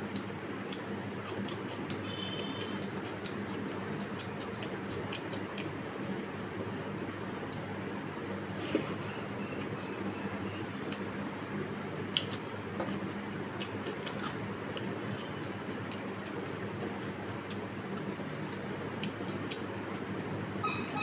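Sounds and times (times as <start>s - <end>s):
eating clicks and smacks: 0.0s - 6.2s, 7.4s - 7.7s, 10.8s - 20.2s.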